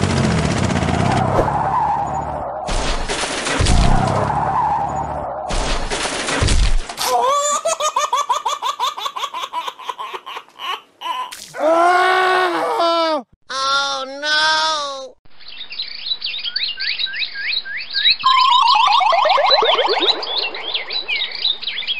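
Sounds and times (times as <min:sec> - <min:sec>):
high-pitched giggling laugh: 0:07.0 - 0:11.3
long drawn-out cry: 0:11.0 - 0:13.3.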